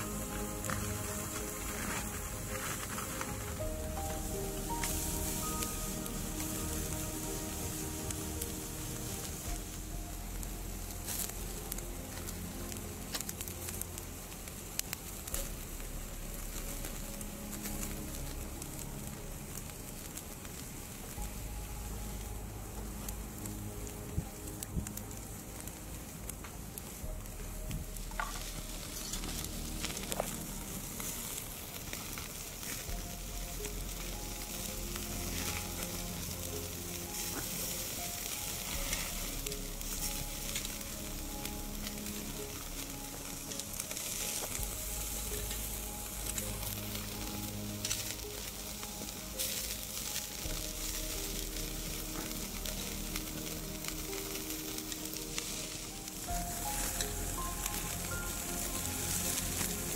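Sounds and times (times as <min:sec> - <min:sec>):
fire crackling and popping: 0:00.0 - 0:59.9
soft background music: 0:00.0 - 0:59.9
steaks sizzling on grill: 0:00.0 - 0:59.9.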